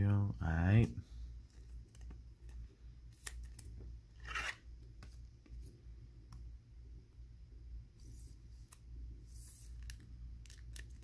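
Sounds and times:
card sliding rustle: 1.5s - 5.8s, 8.0s - 11.0s.

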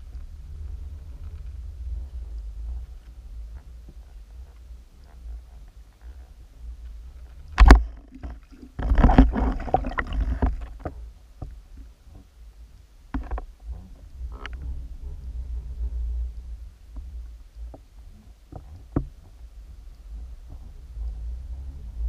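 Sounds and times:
muffled underwater rumble: 0.0s - 22.0s
fish splashing and bubbles: 7.6s - 10.8s
sharp knock underwater: 7.6s - 10.9s.

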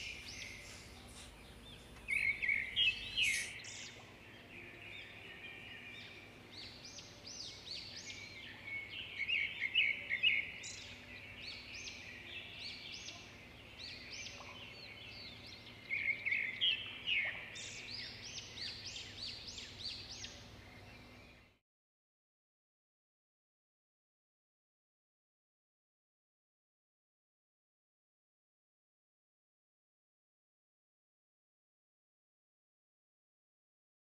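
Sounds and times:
small birds chirping: 0.0s - 21.6s.

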